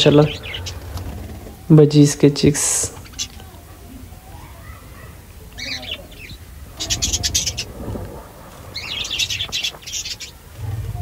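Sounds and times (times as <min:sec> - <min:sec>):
budgerigars chirping: 0:00.0 - 0:00.9, 0:05.6 - 0:07.8, 0:08.7 - 0:10.4.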